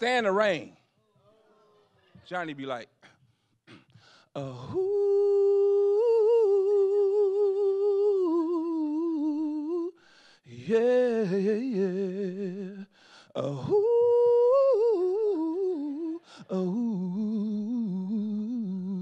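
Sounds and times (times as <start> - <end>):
man breathing: 3.0 - 4.4, 10.0 - 10.5, 12.9 - 13.4, 16.2 - 16.5
man singing with vibrato: 4.3 - 19.0.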